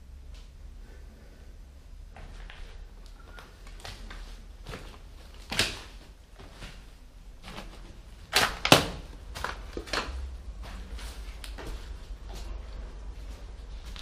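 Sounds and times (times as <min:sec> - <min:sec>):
footsteps crunching over debris: 0:02.2 - 0:08.3.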